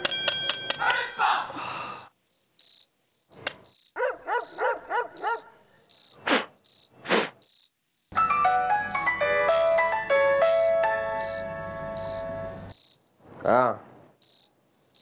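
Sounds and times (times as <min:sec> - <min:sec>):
crickets chirping: 0:01.0 - 0:08.2, 0:10.5 - 0:15.0
music: 0:08.2 - 0:12.7.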